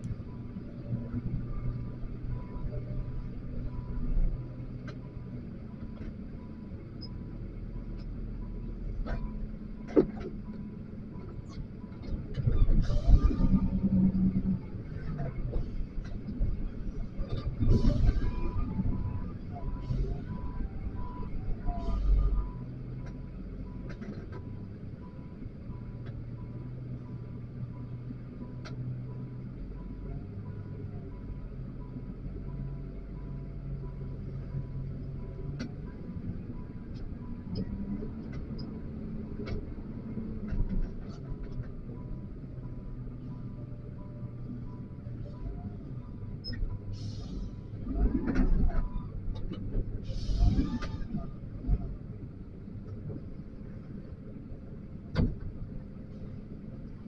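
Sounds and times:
knocks and clunks: 55.1 - 55.6.

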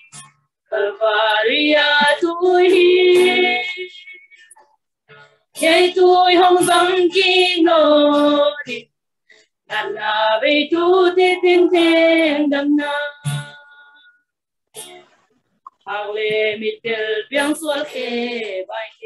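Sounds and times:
women singing a hymn: 0.7 - 4.2, 5.6 - 8.9, 9.7 - 14.0, 15.8 - 19.0.

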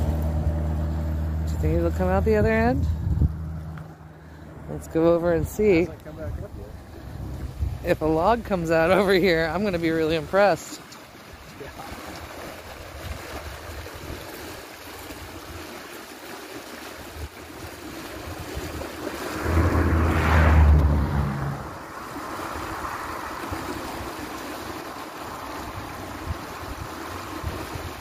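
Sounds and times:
river water swirling and rushing: 0.0 - 28.0
wind on microphone: 1.8 - 3.7, 18.2 - 28.0.

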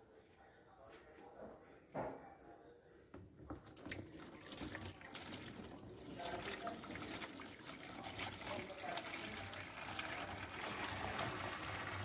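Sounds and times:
liquid soap pouring into mould: 3.5 - 12.0.

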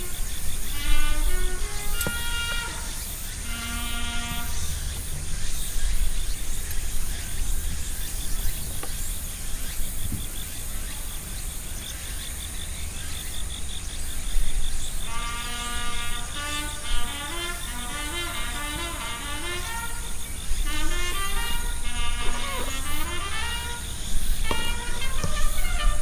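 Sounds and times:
insects chirping: 0.0 - 26.0
background music: 15.1 - 26.0.

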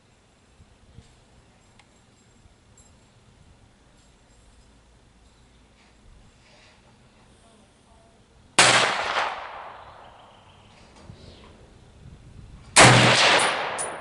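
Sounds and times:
rifle shots with echo: 8.6 - 10.5, 12.8 - 14.0.

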